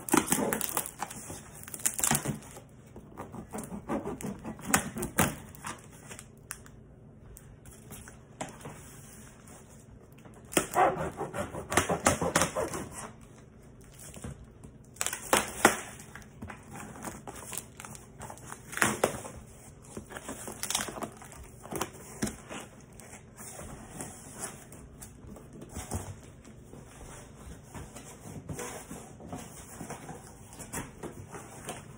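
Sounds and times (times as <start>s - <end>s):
plastic wrap crinkling: 0.0s - 2.9s, 13.2s - 23.4s.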